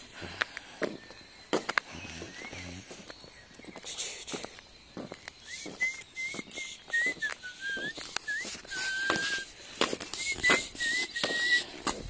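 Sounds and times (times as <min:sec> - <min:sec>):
footsteps clicking: 0:00.2 - 0:12.0
person whistling short notes: 0:05.4 - 0:12.0.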